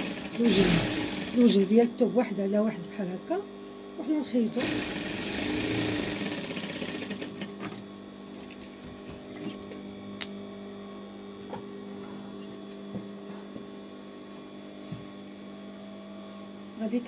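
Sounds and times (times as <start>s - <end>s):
sewing machine stitching fast: 0.0s - 1.7s, 4.6s - 7.4s
steady hum: 0.0s - 17.0s.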